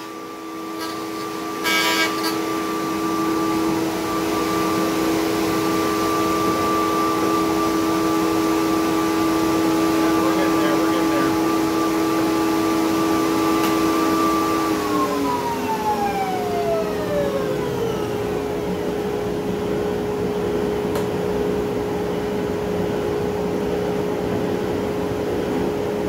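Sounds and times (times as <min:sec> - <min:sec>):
router whining and winding down: 0:00.0 - 0:19.3
steady machine hum: 0:00.0 - 0:26.0.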